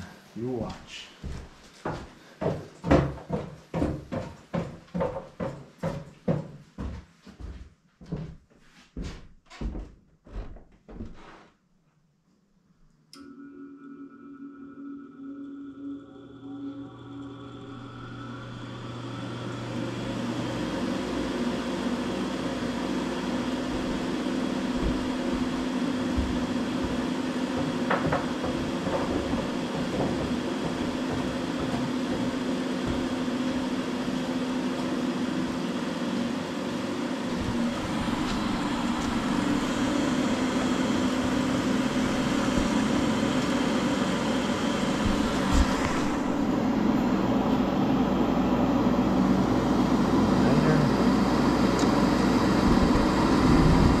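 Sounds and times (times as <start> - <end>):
furnace inducer motor humming: 13.1 - 54.0
gas burners lighting: 37.3 - 47.8.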